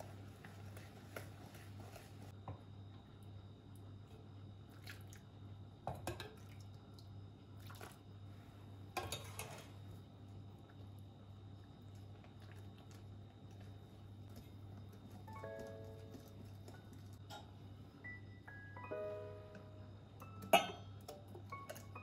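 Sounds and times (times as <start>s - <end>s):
low steady hum: 0.0s - 22.0s
ladle clinking on glass: 20.4s - 21.9s.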